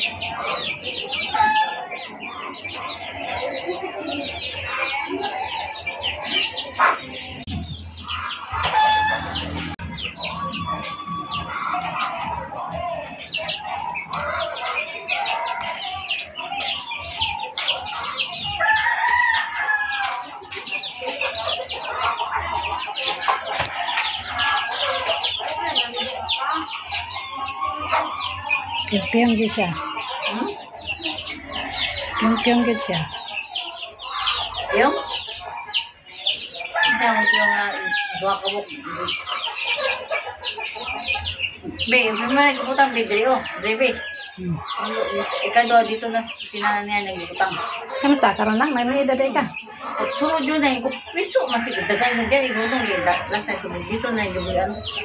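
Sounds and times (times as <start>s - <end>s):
chickens clucking: 0.0s - 55.0s
rooster crowing: 8.5s - 9.8s, 18.6s - 20.3s, 36.7s - 39.1s, 51.4s - 53.4s.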